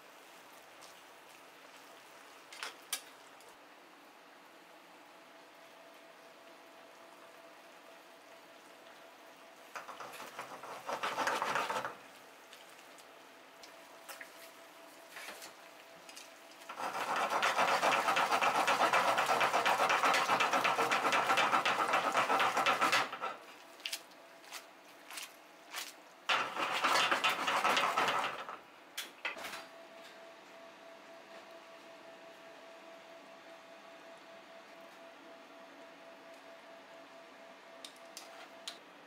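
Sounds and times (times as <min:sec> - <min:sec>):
bubbling sauce: 0:06.7 - 0:14.5
pasta sizzling and squelching in pan: 0:08.6 - 0:23.9, 0:26.3 - 0:28.6.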